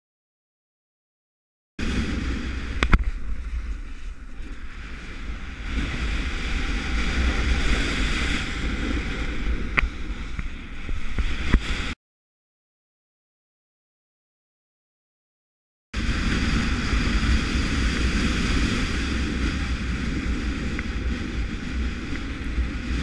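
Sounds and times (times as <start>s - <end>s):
skis hissing on snow: 1.8s - 9.3s
wind buffeting microphone: 1.8s - 12.0s, 16.0s - 23.0s.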